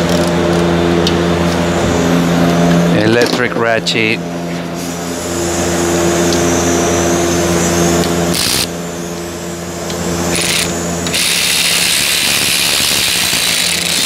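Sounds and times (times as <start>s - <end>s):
steady machine hum: 0.0s - 14.0s
electric ratchet spinning: 8.0s - 8.8s, 10.0s - 14.0s.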